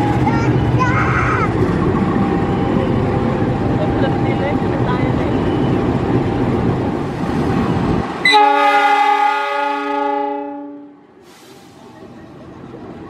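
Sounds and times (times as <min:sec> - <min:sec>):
train rumbling past: 0:00.0 - 0:13.0
locomotive horn blast: 0:08.2 - 0:11.0.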